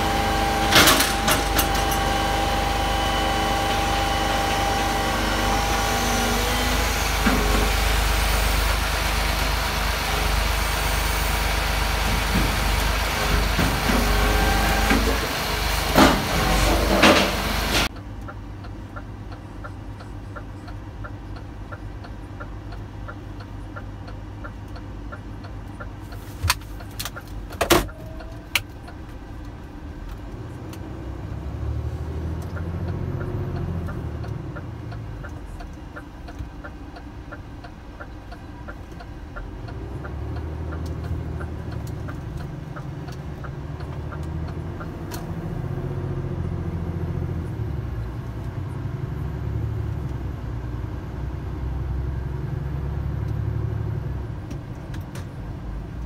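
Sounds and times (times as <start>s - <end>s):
garbage truck engine running: 0.0s - 17.9s
turn indicator ticking: 17.9s - 49.2s.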